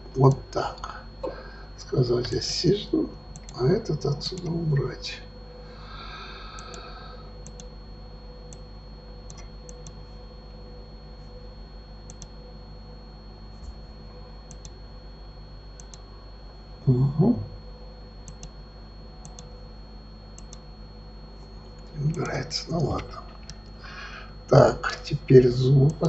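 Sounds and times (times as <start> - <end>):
electrical hum: 0.0 - 26.0
computer mouse clicks: 6.6 - 6.8, 7.4 - 7.7, 9.3 - 10.0, 12.1 - 12.3, 14.5 - 14.8, 15.8 - 16.1, 18.2 - 18.6, 19.2 - 19.5, 20.4 - 20.6.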